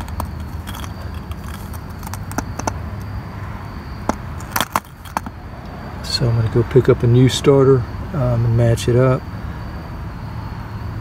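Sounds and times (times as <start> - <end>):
starter motor clicks and knocks: 0.0 - 3.1, 4.0 - 5.4.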